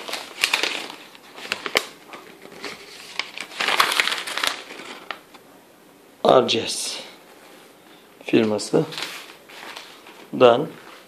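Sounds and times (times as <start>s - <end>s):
paper crinkling and rustling: 0.0s - 5.4s, 8.3s - 11.0s.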